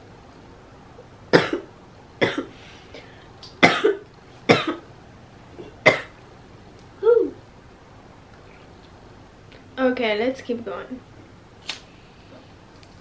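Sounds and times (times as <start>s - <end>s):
woman coughing: 1.3s - 2.5s, 3.6s - 4.8s.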